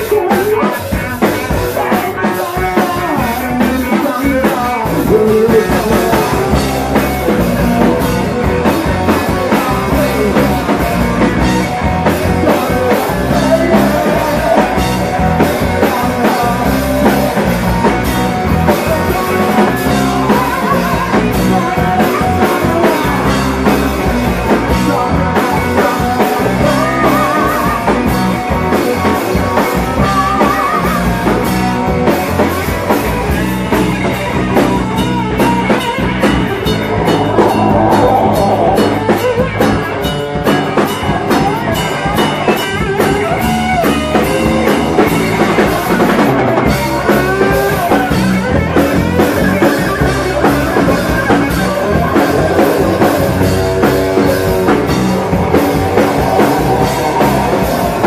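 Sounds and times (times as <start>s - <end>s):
person singing: 0.0s - 31.4s, 34.3s - 39.6s, 41.3s - 58.0s
live rock band playing: 0.0s - 58.0s.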